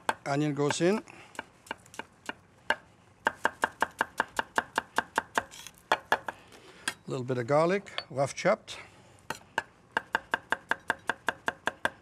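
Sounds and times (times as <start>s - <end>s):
knife chopping on a wooden board: 0.0s - 6.4s, 9.3s - 12.0s.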